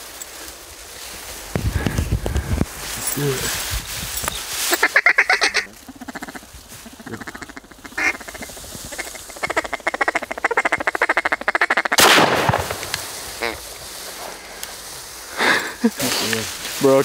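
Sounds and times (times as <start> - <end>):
ducks quacking: 4.7 - 12.0, 13.2 - 14.6
shotgun blast: 12.0 - 13.4.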